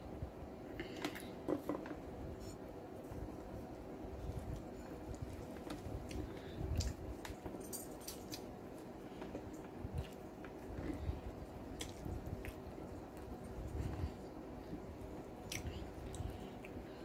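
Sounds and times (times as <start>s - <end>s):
wet chewing: 11.7s - 14.7s.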